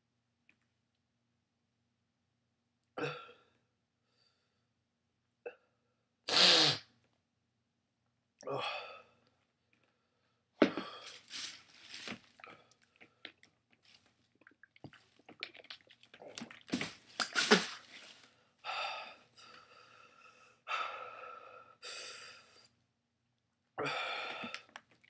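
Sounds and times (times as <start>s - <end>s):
man breathing hard: 18.6s - 22.7s, 23.8s - 24.6s.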